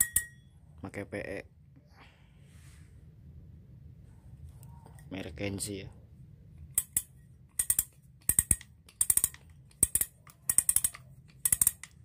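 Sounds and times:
fishing reels clinking and clattering: 0:06.8 - 0:12.0.

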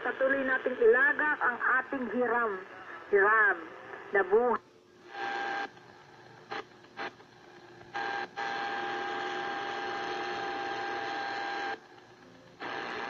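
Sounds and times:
radio static: 0:00.0 - 0:07.3, 0:12.6 - 0:13.0.

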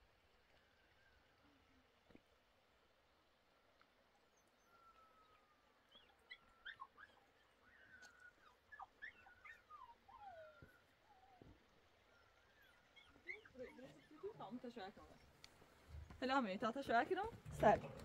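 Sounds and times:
dog whining: 0:05.9 - 0:14.3
dog yelping: 0:05.9 - 0:14.6.

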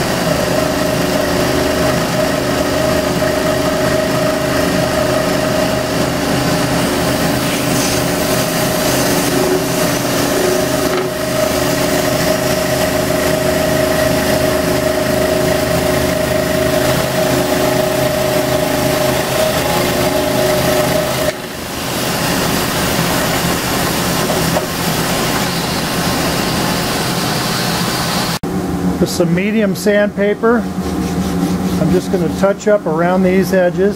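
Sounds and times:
scroll saw motor hum: 0:00.5 - 0:21.6
saw blade cutting wood: 0:01.2 - 0:21.6, 0:30.6 - 0:32.5.

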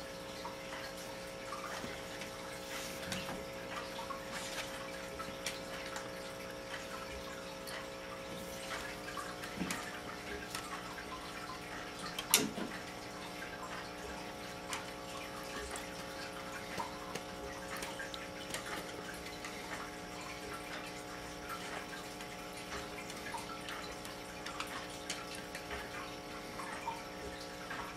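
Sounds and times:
light ticks and clicks: 0:05.3 - 0:10.9.

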